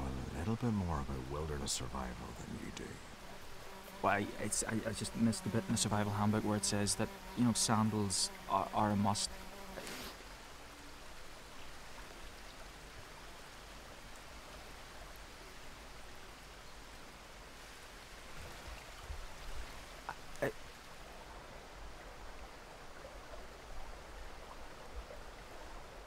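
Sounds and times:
low rumbles: 0:00.0 - 0:03.2
outdoor background hiss: 0:00.0 - 0:26.0.

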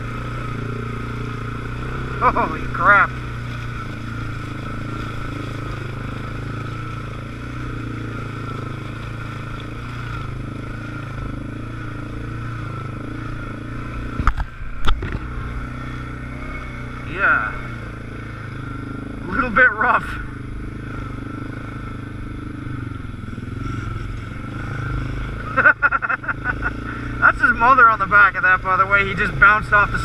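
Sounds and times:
atv engine running: 0:00.0 - 0:30.0
sharp knocks over bumps: 0:14.0 - 0:15.5.

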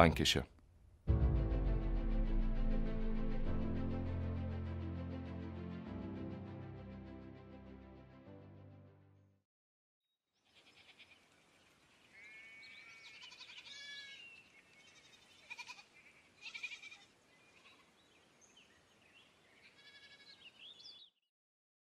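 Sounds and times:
high animal calls and chirps: 0:12.1 - 0:17.9.

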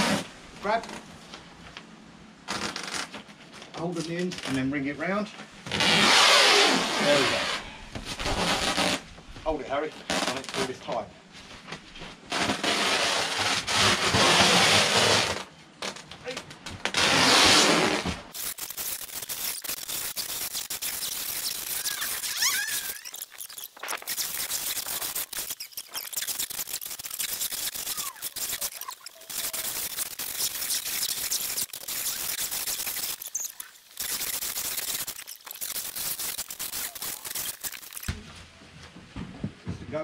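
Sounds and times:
plastic wrap crackling hiss: 0:06.6 - 0:09.1, 0:09.8 - 0:38.1.

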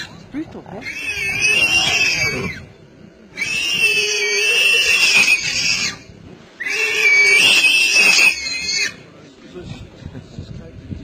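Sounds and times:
animal squealing in distress: 0:00.8 - 0:02.7, 0:03.4 - 0:09.1.

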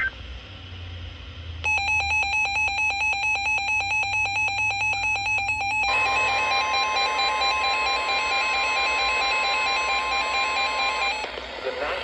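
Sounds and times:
rapid electronic beeping: 0:01.7 - 0:11.3
steady alert tone: 0:01.7 - 0:11.3.

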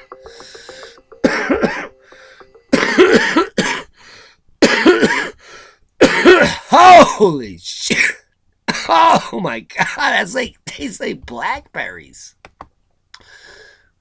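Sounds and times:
man coughing hard: 0:01.2 - 0:01.9, 0:02.7 - 0:03.9, 0:04.6 - 0:05.4, 0:06.0 - 0:07.2, 0:07.9 - 0:10.0.

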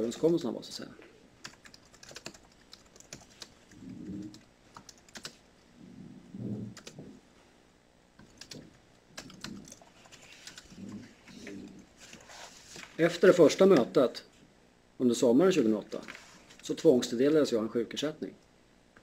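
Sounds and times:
typing on computer keyboard: 0:01.4 - 0:05.4, 0:06.7 - 0:07.0, 0:08.2 - 0:10.9.

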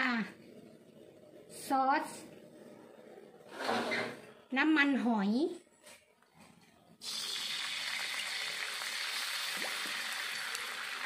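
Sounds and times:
food frying in hot oil: 0:07.0 - 0:11.0.

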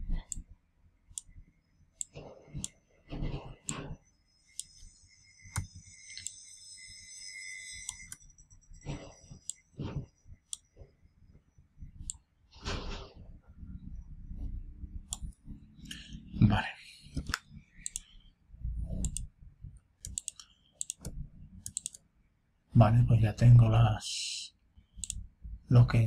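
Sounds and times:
computer mouse clicking: 0:15.1 - 0:16.1, 0:17.2 - 0:18.1, 0:18.9 - 0:19.3, 0:20.0 - 0:22.0, 0:25.0 - 0:25.2.

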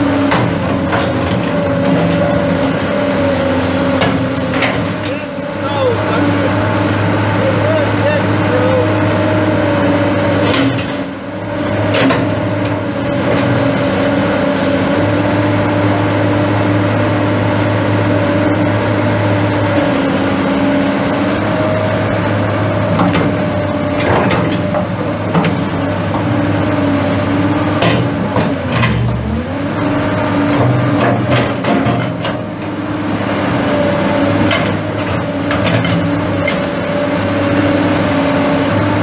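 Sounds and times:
excavator diesel engine running: 0:00.0 - 0:39.0.

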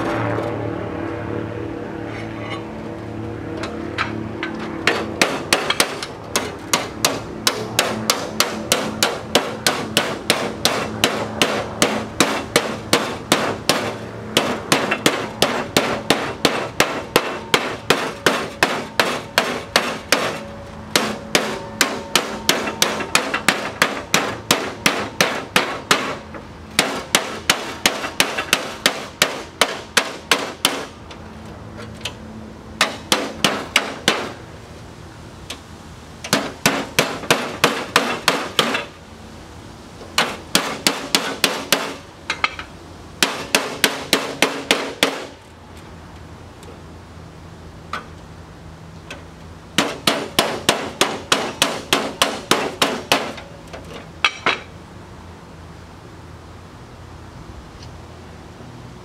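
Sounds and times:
hammer striking sheet metal: 0:04.0 - 0:31.0, 0:32.8 - 0:34.4, 0:36.3 - 0:38.9, 0:40.2 - 0:42.6, 0:43.2 - 0:45.4, 0:49.8 - 0:53.5.

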